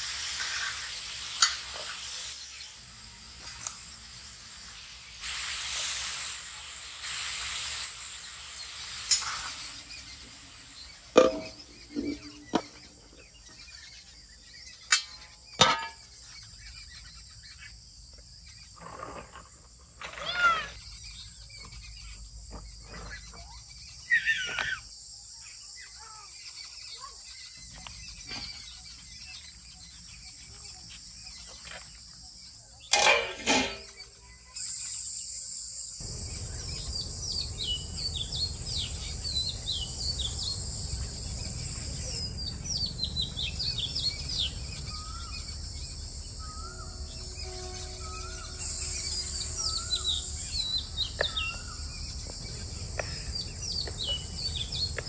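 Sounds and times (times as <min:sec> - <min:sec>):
birds chirping: 0:08.2 - 0:55.0
high-pitched insect drone: 0:33.9 - 0:55.0.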